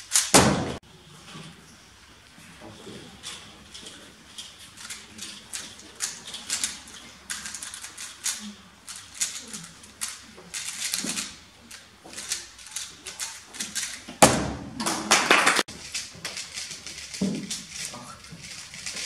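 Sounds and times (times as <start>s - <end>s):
puzzle cube clicking: 4.4s - 14.1s.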